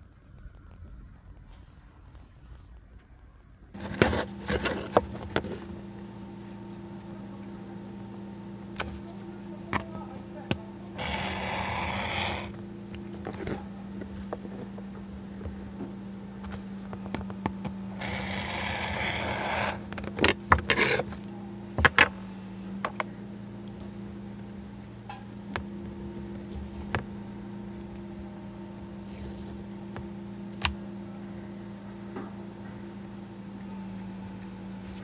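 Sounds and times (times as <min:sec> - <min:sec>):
knife scraping cut along ruler: 0:11.0 - 0:12.6, 0:18.0 - 0:19.8, 0:20.7 - 0:21.1.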